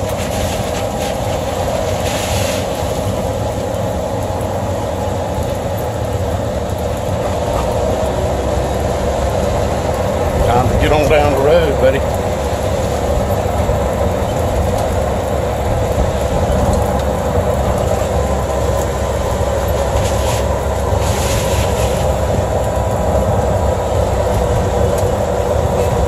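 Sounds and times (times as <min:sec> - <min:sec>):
tyre hiss on wet road: 0:00.0 - 0:04.1, 0:18.0 - 0:26.0
cart motor running: 0:00.0 - 0:26.0
rain: 0:00.0 - 0:26.0
wind: 0:00.0 - 0:26.0.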